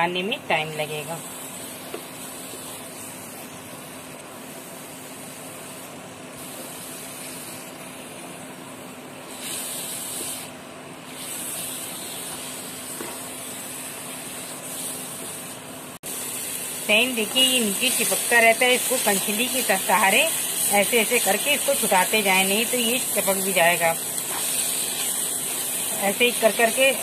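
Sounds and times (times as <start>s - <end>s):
paste sizzling in a pan: 16.1s - 27.0s.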